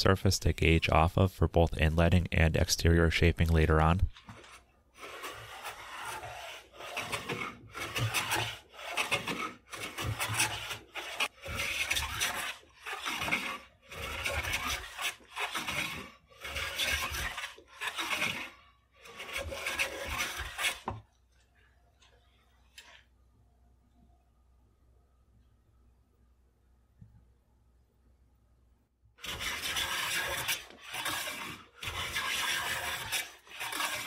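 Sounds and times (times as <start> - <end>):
hand plane shaving wood: 4.1 - 21.1, 29.2 - 34.0.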